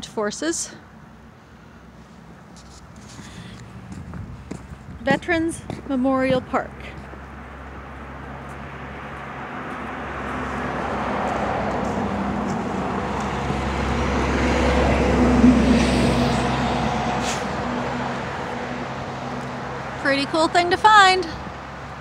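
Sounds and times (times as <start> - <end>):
vehicle engine passing: 3.0 - 22.0.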